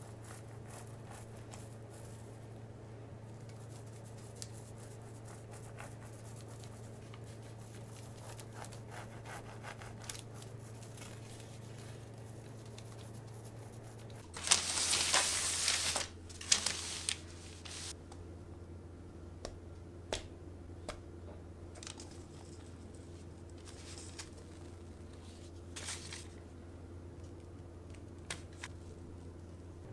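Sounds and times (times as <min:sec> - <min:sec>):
low steady hum: 0:00.0 - 0:29.9
baking paper rustling: 0:03.4 - 0:18.0, 0:21.8 - 0:26.5.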